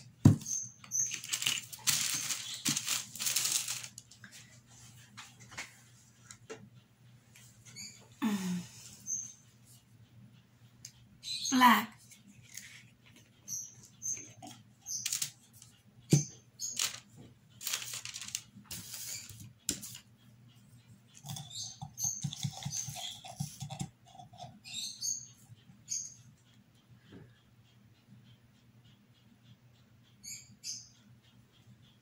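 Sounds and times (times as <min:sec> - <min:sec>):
brush worked in paint jar: 0:21.1 - 0:25.3.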